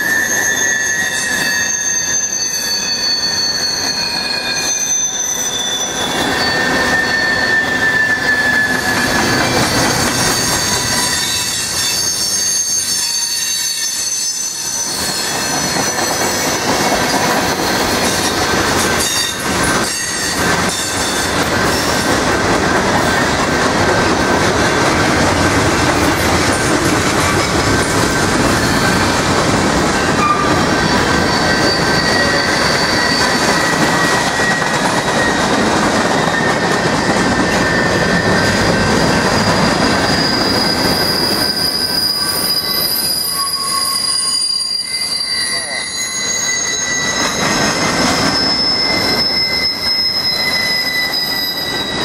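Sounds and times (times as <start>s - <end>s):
high-pitched wheel squeal: 0.0s - 52.0s
train wheels rumbling on rail: 0.0s - 52.0s
wheels clacking over rail joints: 15.3s - 41.5s.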